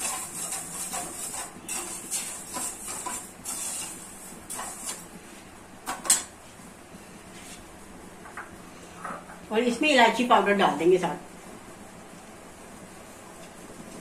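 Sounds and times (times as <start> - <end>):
spoon scraping sugar in a steel pan: 0.0 - 5.1.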